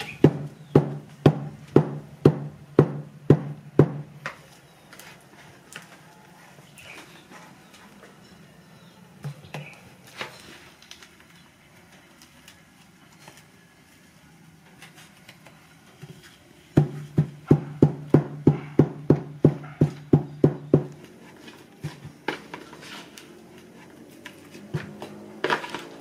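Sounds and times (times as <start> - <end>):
soft scraping: 21.1 - 26.0.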